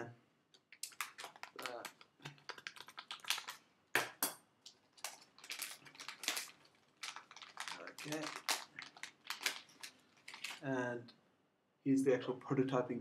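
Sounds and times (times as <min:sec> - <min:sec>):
plastic crinkling: 0:00.6 - 0:10.7
scissors cutting plastic bag: 0:00.8 - 0:03.5, 0:05.0 - 0:10.6.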